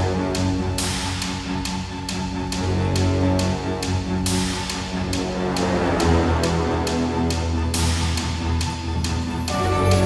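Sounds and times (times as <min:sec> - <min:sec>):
instrumental background music: 0:00.0 - 0:10.0.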